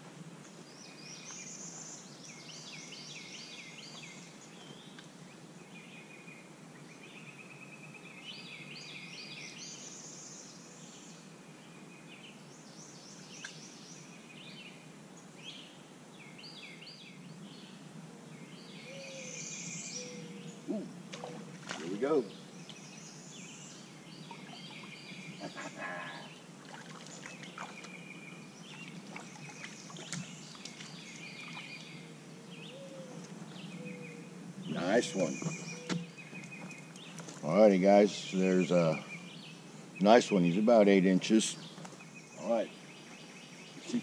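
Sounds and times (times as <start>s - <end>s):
outdoor background hiss: 0.0s - 44.0s
songbirds chirping: 0.0s - 44.0s.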